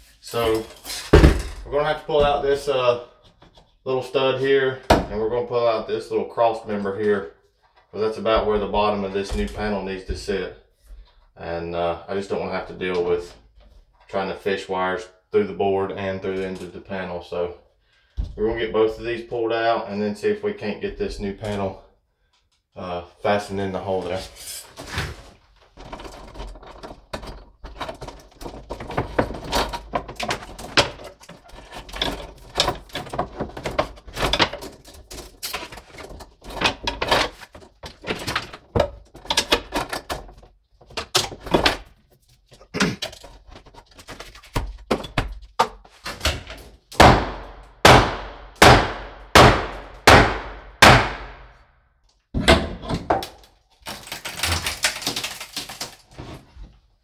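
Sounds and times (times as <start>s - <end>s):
knocking and clattering: 25.7s - 41.9s
hammer striking wood: 47.0s - 51.5s.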